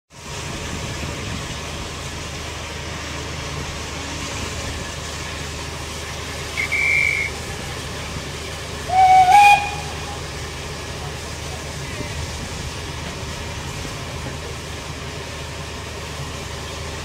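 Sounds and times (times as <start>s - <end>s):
steam hissing: 0.2s - 17.0s
high-pitched locomotive whistle: 6.6s - 7.4s, 8.9s - 10.3s.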